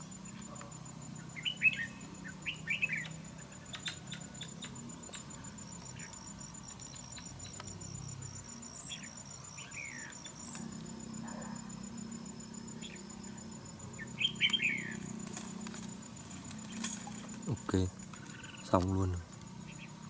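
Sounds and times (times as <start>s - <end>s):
bulbuls chirping: 0.0s - 20.0s.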